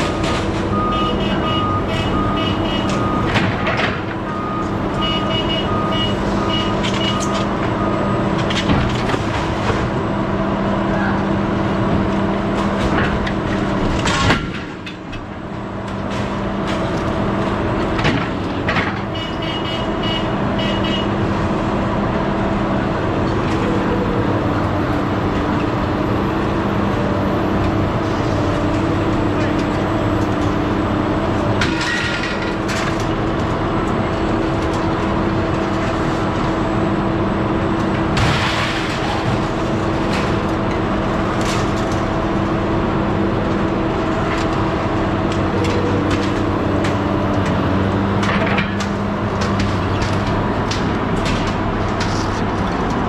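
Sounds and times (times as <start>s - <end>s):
heavy machine engine running: 0.0s - 53.0s
backup alarm beeping: 0.7s - 3.3s, 4.3s - 8.0s.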